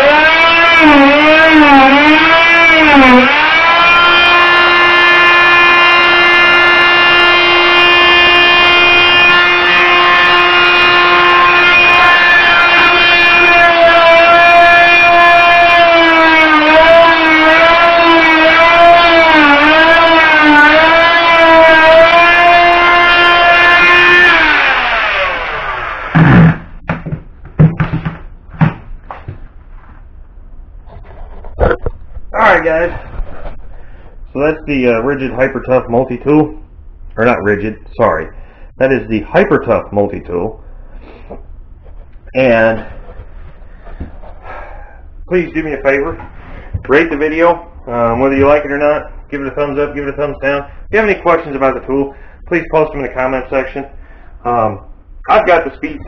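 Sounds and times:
oscillating multi-tool whine: 0.0s - 26.6s
sharp knocks and clunks: 26.2s - 29.4s.

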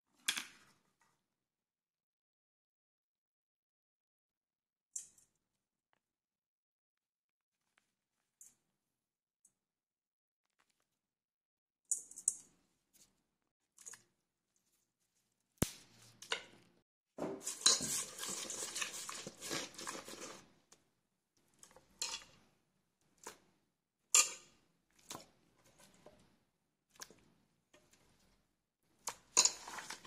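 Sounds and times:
stirring in a metal bowl: 17.4s - 20.8s, 21.4s - 30.0s.

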